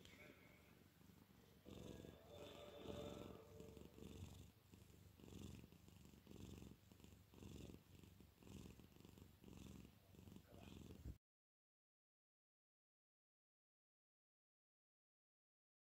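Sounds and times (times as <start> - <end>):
cat purring: 0.0 - 11.2.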